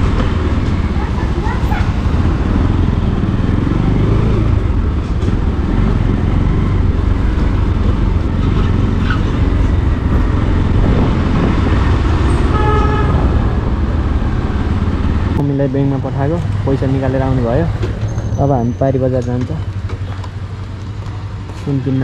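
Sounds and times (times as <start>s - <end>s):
motorcycle engine running: 0.0s - 22.0s
vehicle horn beep: 12.4s - 13.4s.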